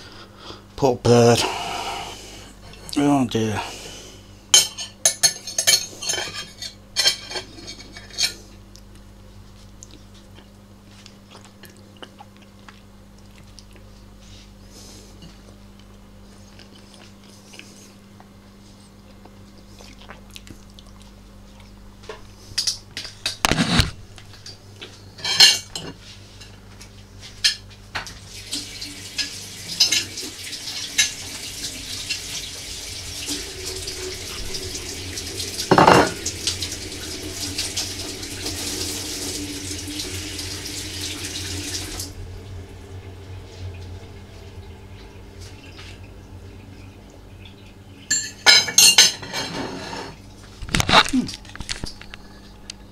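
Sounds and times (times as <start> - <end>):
dishes and cutlery clattering: 4.6 - 8.4, 25.2 - 26.0, 35.7 - 36.2, 48.1 - 51.1
tap running into a sink: 34.8 - 42.1.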